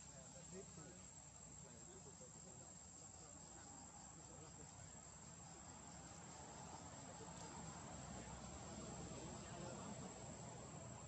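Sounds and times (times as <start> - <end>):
insect chirring: 1.0 - 7.6.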